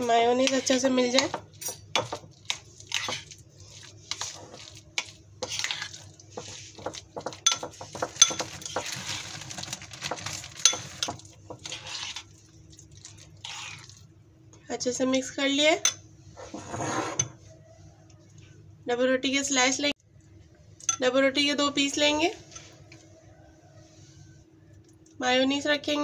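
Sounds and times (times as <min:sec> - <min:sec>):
soft wet stirring: 0:00.0 - 0:14.6.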